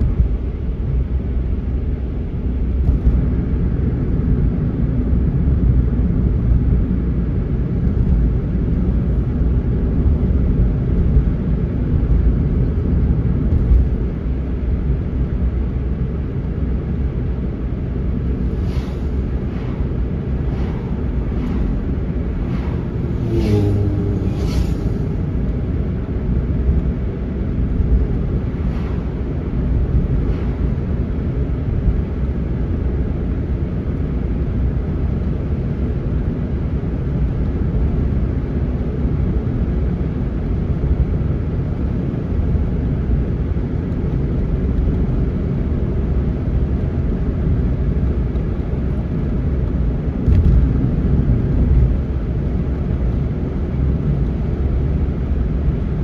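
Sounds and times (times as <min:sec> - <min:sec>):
car tyres and engine rumble: 0:00.0 - 0:56.0
vehicles whooshing past: 0:18.1 - 0:26.2, 0:27.6 - 0:32.3.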